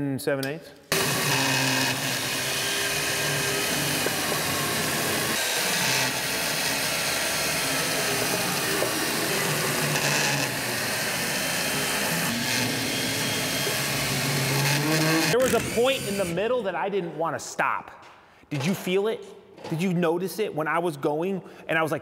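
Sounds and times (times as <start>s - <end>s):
chainsaw cutting wood: 0.9s - 16.2s.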